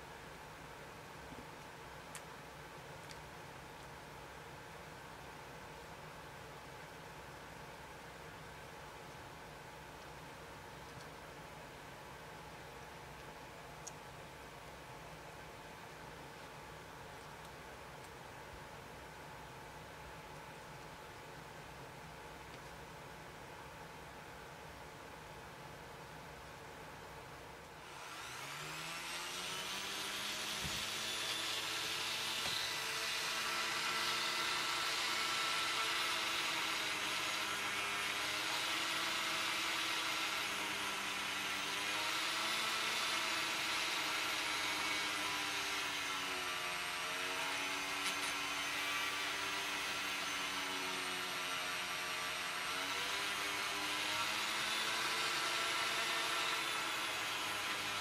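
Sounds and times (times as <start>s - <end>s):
rotary tool whining: 27.8s - 58.0s.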